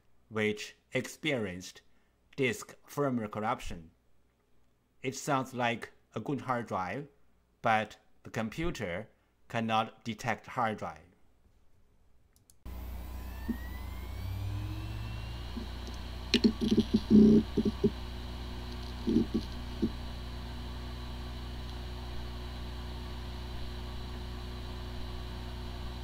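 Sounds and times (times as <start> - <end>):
hard disk spinning whine: 12.7 - 26.0
hard disk heads clicking: 15.6 - 18.0, 18.6 - 20.0.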